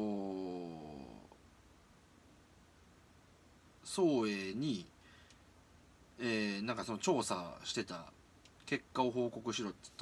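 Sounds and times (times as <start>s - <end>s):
man humming in hesitation: 0.0s - 1.4s.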